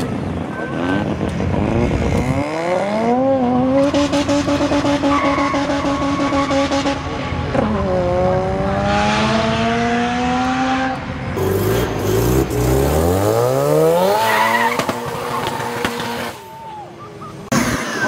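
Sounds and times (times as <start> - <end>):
sports car engine accelerating: 1.2 - 16.3
tires squealing: 3.8 - 7.7, 11.5 - 18.0.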